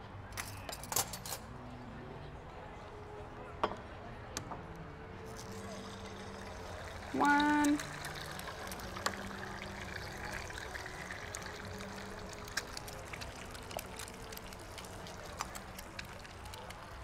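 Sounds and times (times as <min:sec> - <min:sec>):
eggs sizzling in oil: 0:05.3 - 0:17.0.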